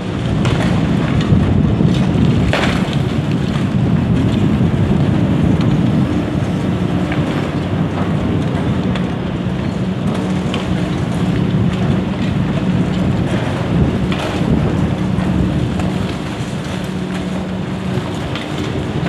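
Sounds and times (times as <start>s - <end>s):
excavator diesel engine running: 3.1s - 19.0s.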